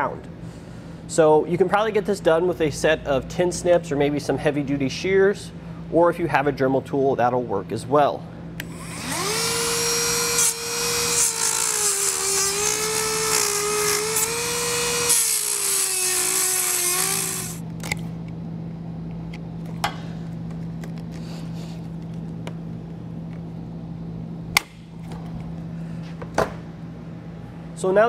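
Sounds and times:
rotary tool whining cutting plastic: 8.6s - 17.6s.

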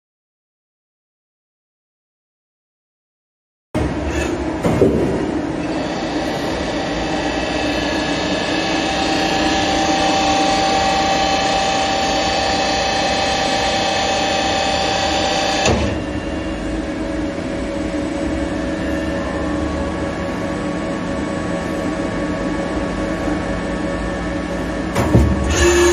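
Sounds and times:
machine whine: 3.8s - 25.9s
machine knock: 4.6s - 5.5s, 25.0s - 25.6s.

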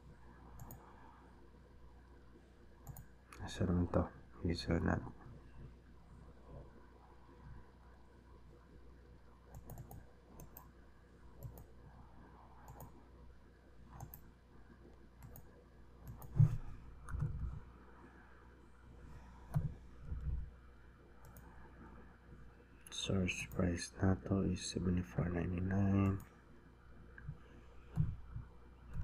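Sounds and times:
mouse and keyboard clicking: 0.6s - 0.8s, 9.5s - 10.7s, 11.4s - 11.7s, 13.9s - 14.3s, 15.2s - 17.4s.

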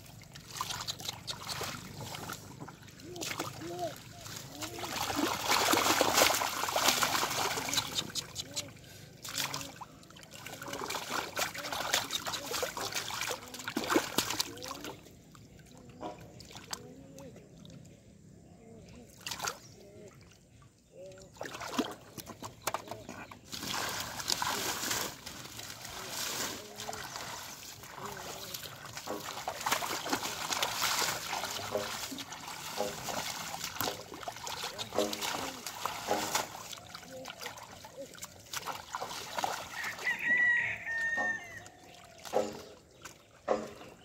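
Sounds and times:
hands splashing in muddy water: 0.1s - 15.1s, 21.3s - 44.0s
water trickling: 22.9s - 44.0s.

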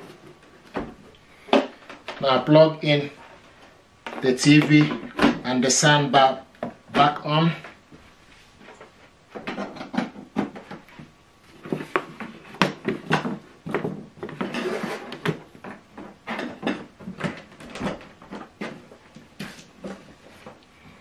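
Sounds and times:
cables being moved: 11.5s - 20.6s.

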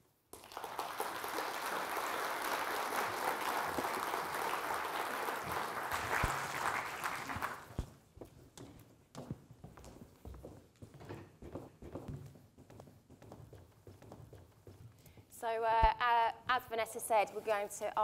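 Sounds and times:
audience applauding: 0.4s - 7.8s.

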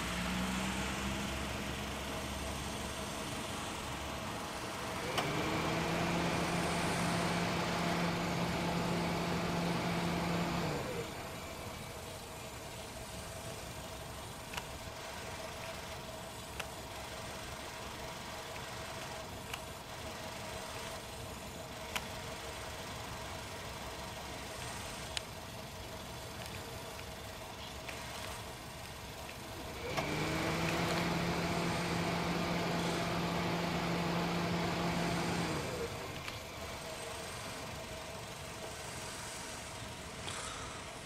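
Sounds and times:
low engine hum with rushing: 0.0s - 17.0s, 25.8s - 41.0s.

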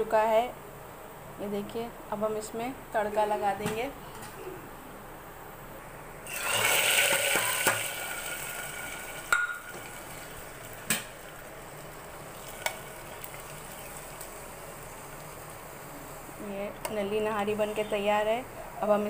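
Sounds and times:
hot oil sizzling: 6.2s - 16.4s.

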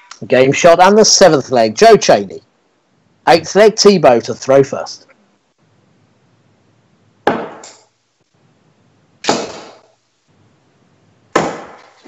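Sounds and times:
darts striking dartboard: 7.3s - 7.9s, 9.2s - 9.9s, 11.4s - 12.0s.

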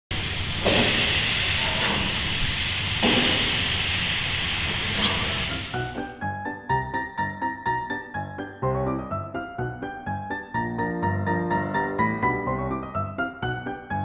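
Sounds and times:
fruit sizzling on a grill: 0.1s - 6.2s
keyboard music: 5.8s - 14.0s.

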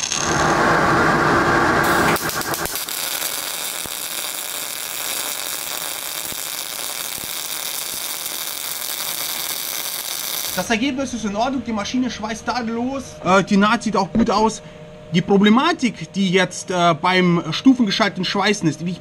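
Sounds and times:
welding arc sputtering: 1.8s - 10.8s.

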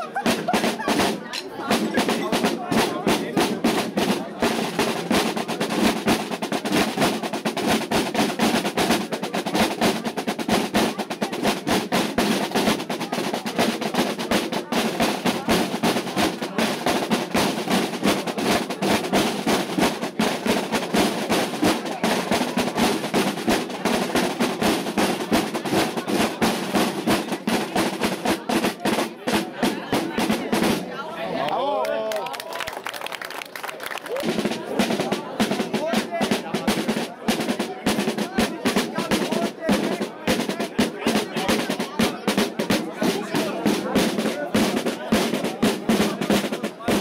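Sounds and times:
field drums playing rapid strokes: 0.0s - 31.0s, 34.1s - 47.0s.

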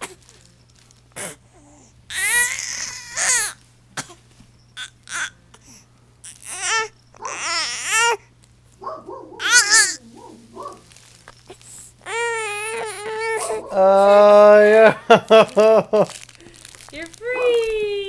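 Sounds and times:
baby whining and crying: 1.2s - 3.6s, 4.8s - 8.3s, 9.4s - 10.0s, 11.4s - 14.9s.

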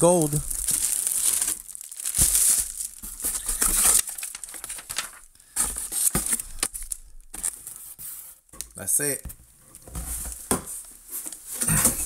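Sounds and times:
plastic wrapping crinkling: 0.0s - 7.9s.

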